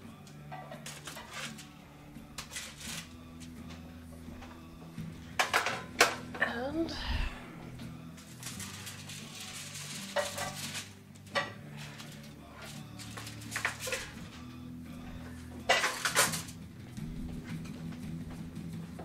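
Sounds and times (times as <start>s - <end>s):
utensils and baking sheet clattering: 0.5s - 1.8s, 2.4s - 3.8s, 5.2s - 6.5s, 8.2s - 14.4s, 15.5s - 16.6s.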